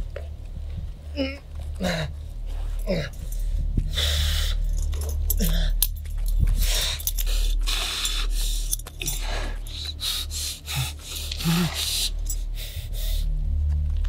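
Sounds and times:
low steady hum: 0.0 - 14.0
man breathing heavily and gasping: 1.7 - 13.4
man grunting: 2.9 - 3.2.

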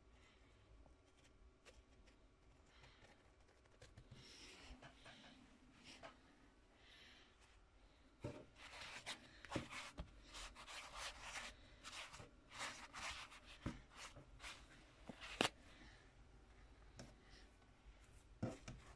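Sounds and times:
brush dabbing on paper: 8.6 - 15.5.

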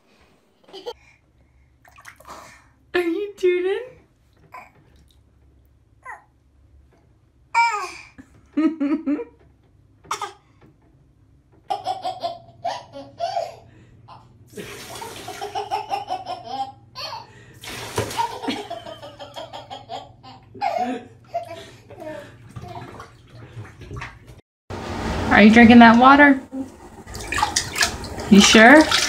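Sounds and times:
baby laughing: 0.6 - 1.0, 11.7 - 14.3, 15.0 - 17.4, 18.1 - 23.0
water running into a tub: 1.8 - 2.7, 14.5 - 16.2, 17.5 - 19.7, 20.7 - 24.4, 25.2 - 29.0.

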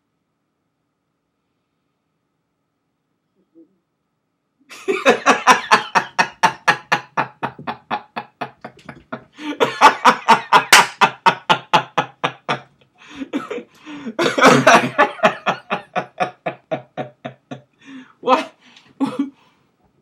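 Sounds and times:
people laughing hard: 4.7 - 17.7.

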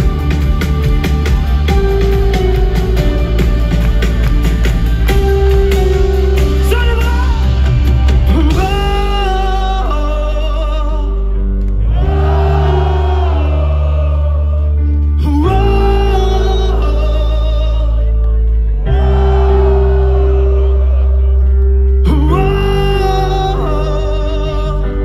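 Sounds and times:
drums: 0.0 - 10.0
live pop band: 0.0 - 25.0
man singing: 6.4 - 11.5, 13.4 - 18.4, 22.0 - 25.0.

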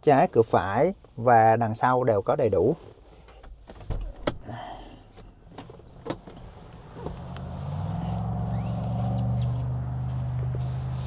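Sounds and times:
sharp clicks and knocks: 5.2 - 6.4.

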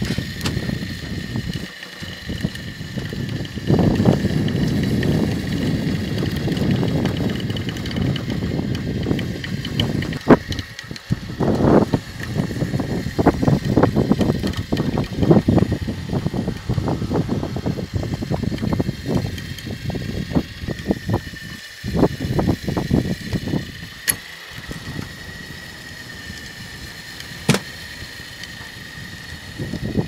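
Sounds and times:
sharp clicks: 0.0 - 28.8
machinery low rumbling: 0.0 - 30.0
steady high whine: 0.0 - 30.0.

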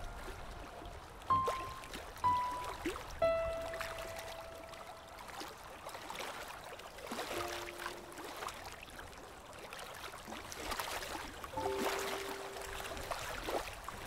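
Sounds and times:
faint musical note: 0.0 - 5.5, 7.4 - 8.5, 11.6 - 13.2
small water splashes: 0.0 - 14.0
small waves lapping: 0.0 - 14.0.

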